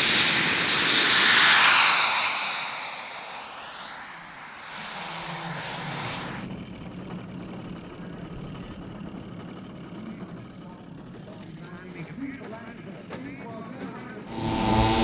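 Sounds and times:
model aircraft engine hiss: 0.0s - 6.5s, 14.3s - 15.0s
low engine drone: 0.2s - 10.3s, 14.3s - 15.0s.

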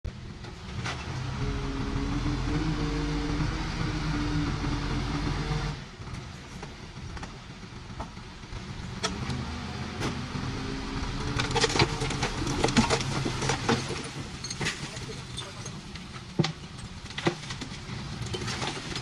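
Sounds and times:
heavy machinery diesel engine: 0.1s - 19.0s
metallic clanks and rattles: 11.2s - 19.0s.

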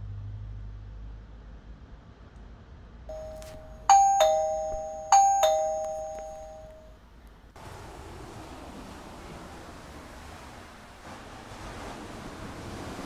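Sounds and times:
two-note doorbell chime: 3.1s - 7.0s.

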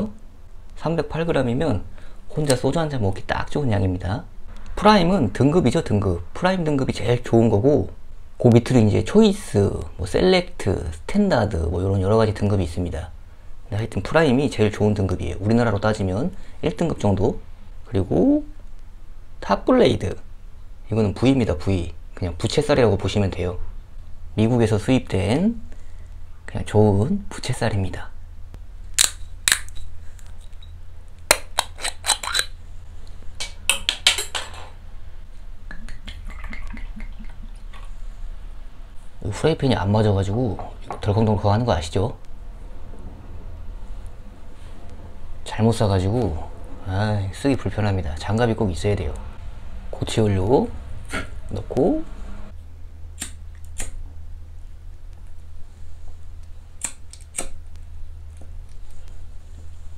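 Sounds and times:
steady low hum: 0.0s - 59.9s
glass and metal tableware clinking: 33.7s - 34.8s.

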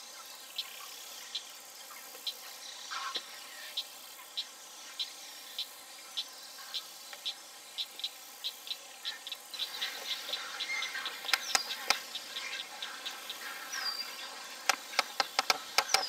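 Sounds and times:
young birds begging chirps: 0.6s - 16.0s
sharp clacks: 14.7s - 16.0s.

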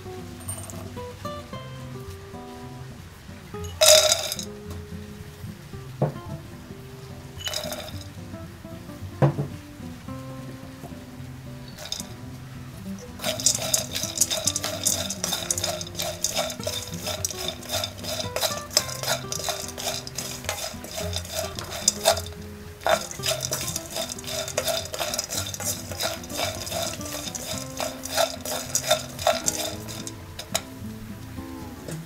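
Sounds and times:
background music: 0.0s - 32.0s
spoon stirring nuts in a pan: 3.7s - 4.5s, 7.4s - 8.1s, 11.7s - 12.2s, 12.8s - 30.8s.

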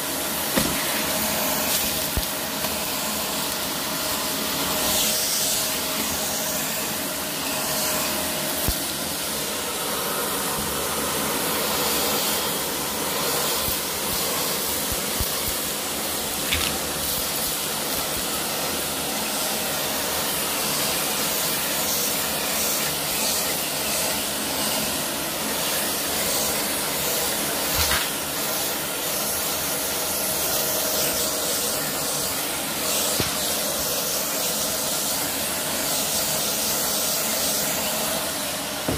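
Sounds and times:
vacuum cleaner hissing: 0.0s - 38.9s.

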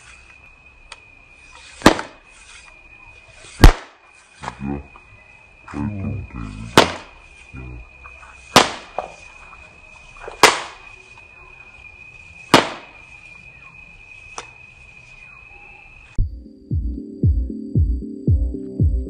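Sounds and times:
popgun pops: 1.8s - 2.2s, 3.6s - 4.0s, 8.5s - 9.0s, 10.4s - 10.8s, 12.5s - 12.9s
music with a beat: 16.2s - 19.0s.

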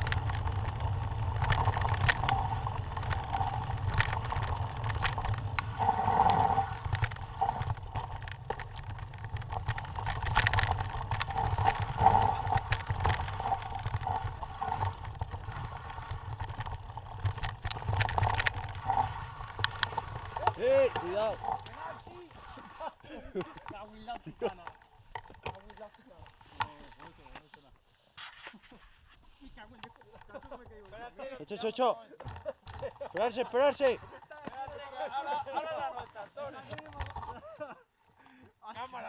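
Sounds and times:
rumble of wind and tyres: 0.0s - 27.5s
bike rattling and clicking: 0.0s - 28.0s, 29.4s - 38.2s.

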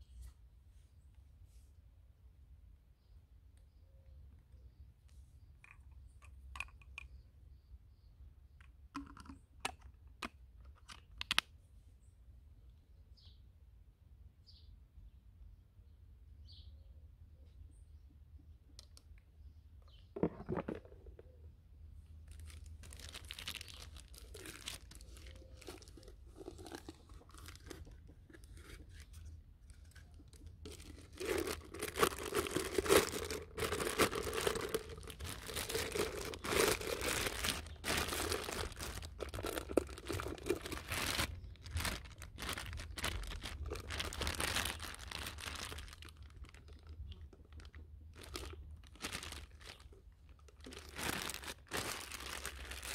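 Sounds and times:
plastic bag crinkling: 20.2s - 21.2s, 22.2s - 52.9s.

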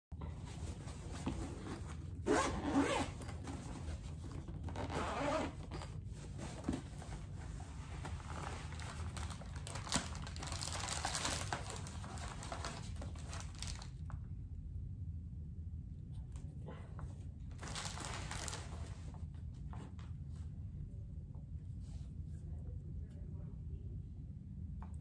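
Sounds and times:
case rustling: 0.4s - 13.9s
zipper being pulled open: 1.4s - 3.6s, 4.6s - 6.0s.

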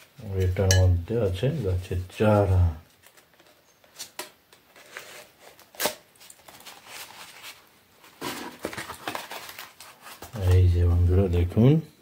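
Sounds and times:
cardboard clicks and rustles: 2.9s - 10.7s
cardboard scraping rustle: 3.1s - 10.7s.

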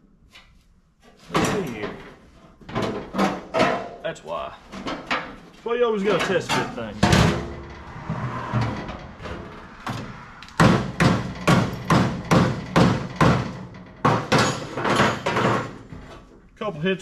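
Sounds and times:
hammer striking steel panel: 10.6s - 15.7s.

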